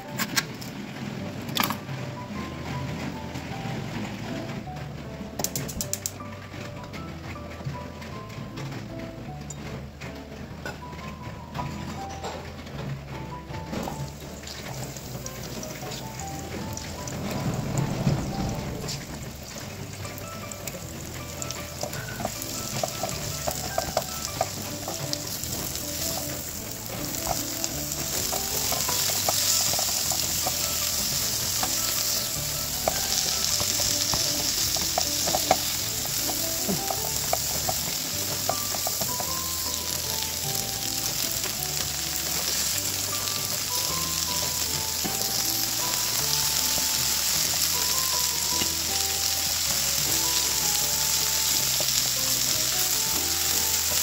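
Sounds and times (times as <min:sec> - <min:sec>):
vegetables sizzling in hot oil: 0:13.7 - 0:54.0.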